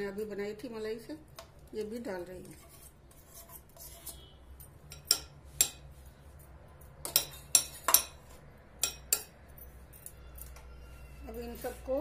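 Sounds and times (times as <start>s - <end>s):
spoon scraping a bowl: 2.4s - 12.0s
metal spoon clinking on bowl: 3.8s - 5.9s, 6.8s - 10.8s.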